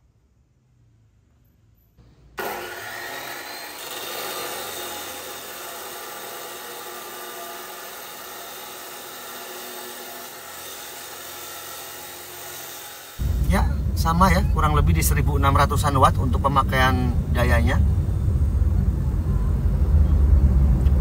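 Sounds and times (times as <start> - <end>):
cut-off saw grinding metal pipe: 2.4 - 13.2.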